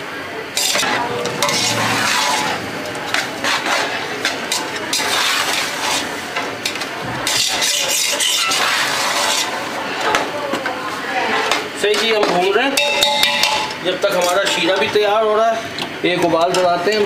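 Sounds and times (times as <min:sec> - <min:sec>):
metal spatula scraping a pot: 0:00.6 - 0:09.7.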